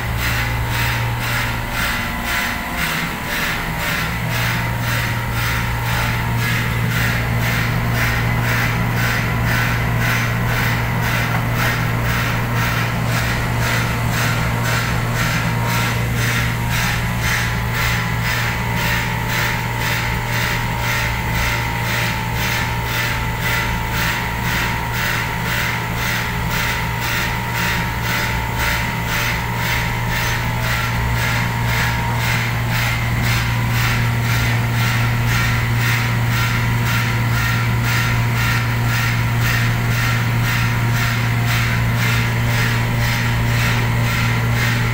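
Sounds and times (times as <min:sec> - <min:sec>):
motor humming: 0:00.0 - 0:20.1.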